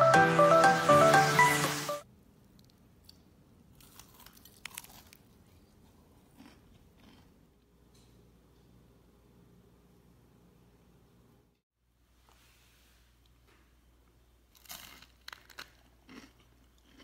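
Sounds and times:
background music: 0.0 - 2.0
crunching fried food: 3.7 - 7.4, 14.4 - 17.0.

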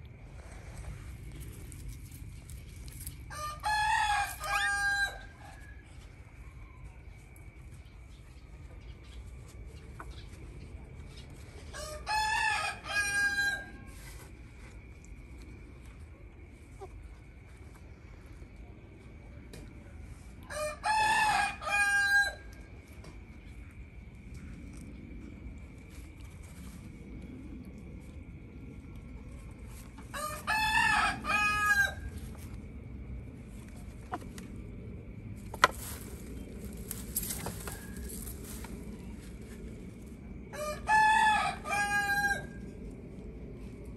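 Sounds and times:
rooster crowing: 3.3 - 7.4, 11.7 - 13.9, 20.4 - 22.6, 30.1 - 32.2, 40.5 - 42.6.

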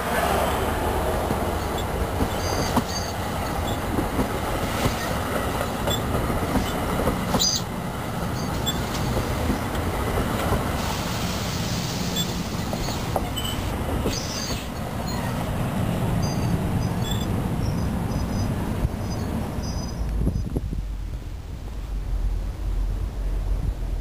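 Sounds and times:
train wheels rumbling on rails: 0.0 - 24.0
high wheel squeals: 1.6 - 3.9, 5.9 - 7.7, 8.3 - 9.1, 10.9 - 15.5, 16.2 - 20.1.

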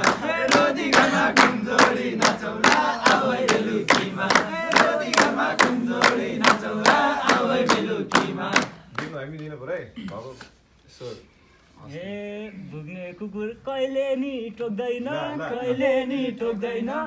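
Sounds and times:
group of men singing: 0.0 - 8.9, 13.3 - 17.0
hands clapping in rhythm: 0.0 - 10.2.

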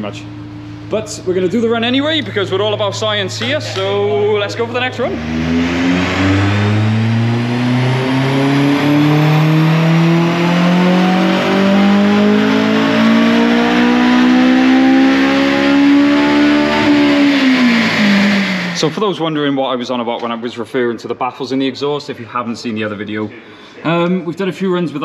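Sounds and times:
car engine revving at full throttle: 3.8 - 19.2.

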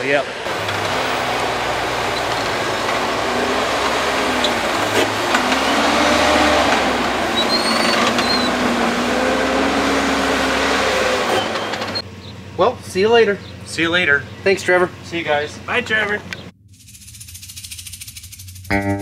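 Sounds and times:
tractor engine under load: 0.5 - 12.4.

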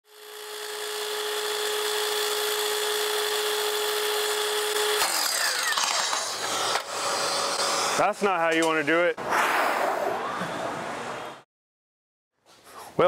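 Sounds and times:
miter saw motor whining: 0.1 - 8.1
saw spinning down: 0.2 - 8.2.

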